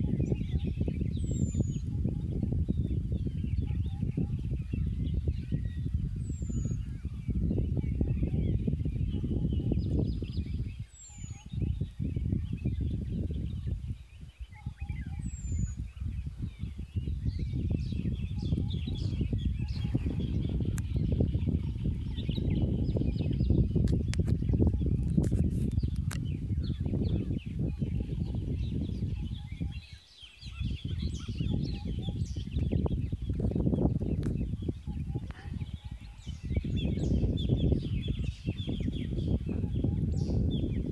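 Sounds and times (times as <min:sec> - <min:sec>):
faint birds chirping: 0:00.0 - 0:40.9
wind buffeting microphone: 0:00.0 - 0:40.9.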